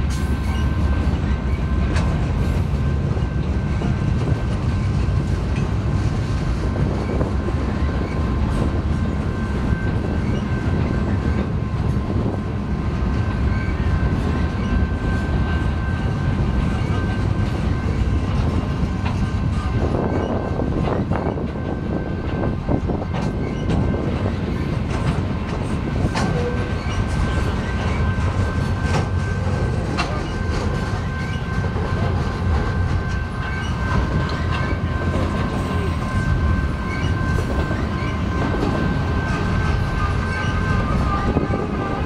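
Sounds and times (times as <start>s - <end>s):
train wheels rumbling on rail: 0.0s - 42.0s
clicks and clanks: 24.9s - 27.9s.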